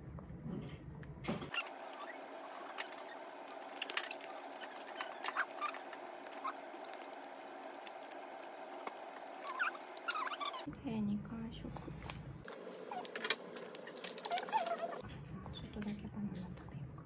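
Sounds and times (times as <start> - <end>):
baby squeaking: 9.4 - 10.7, 14.2 - 15.0.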